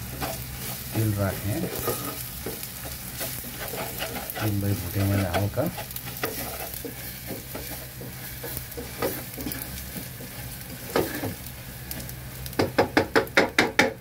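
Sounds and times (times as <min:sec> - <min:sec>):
paste lightly sizzling: 0:00.0 - 0:12.6
spatula scraping paste in pot: 0:03.2 - 0:09.8.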